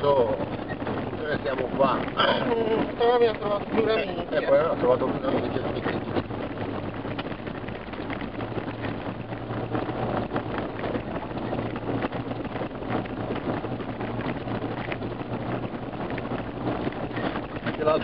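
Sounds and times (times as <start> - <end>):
vehicle engine drone: 0.0 - 18.0
small knocks and rattles: 5.2 - 18.0.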